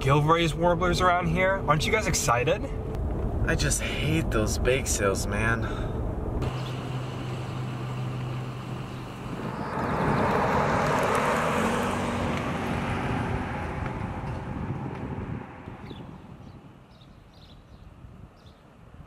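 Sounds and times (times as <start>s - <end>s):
pickup truck driving past: 6.4s - 15.6s.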